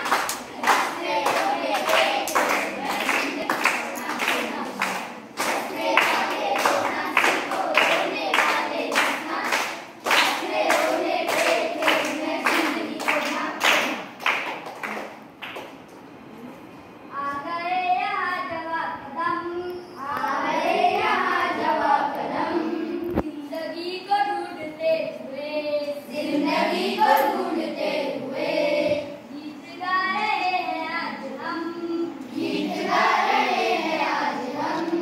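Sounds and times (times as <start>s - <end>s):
children chanting: 0.0s - 14.1s, 20.0s - 23.0s, 26.1s - 29.2s, 31.6s - 35.0s
children clapping a steady beat: 0.0s - 16.0s.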